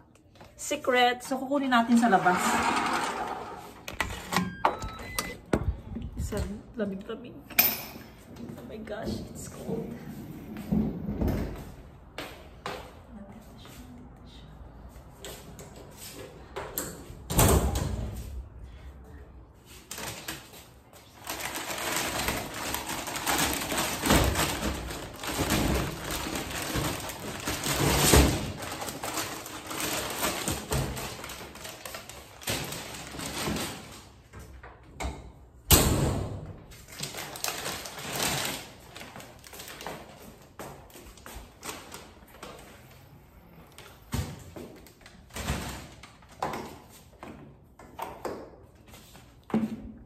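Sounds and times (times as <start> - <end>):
plastic bag crinkling: 21.1 - 33.9, 36.9 - 40.4.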